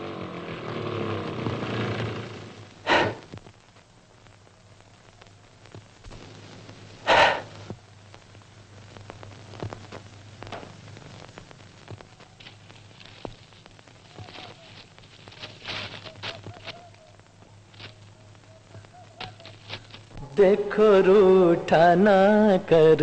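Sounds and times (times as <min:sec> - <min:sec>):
film hum and crackle: 0:00.0 - 0:23.0
faint rustles and clicks: 0:00.7 - 0:20.2
short loud breathy sound: 0:02.8 - 0:03.3, 0:07.1 - 0:07.6.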